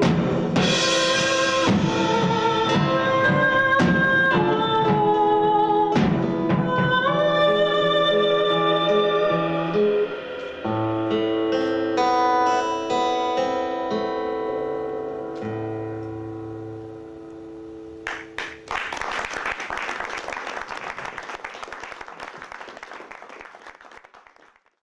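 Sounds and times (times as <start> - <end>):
acoustic guitar notes ringing: 0.0 - 18.6
audience applause: 18.1 - 24.8.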